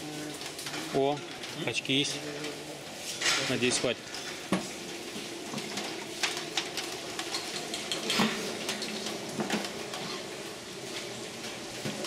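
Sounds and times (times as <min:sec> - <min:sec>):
dishes and utensils clinking: 0:07.2 - 0:10.2.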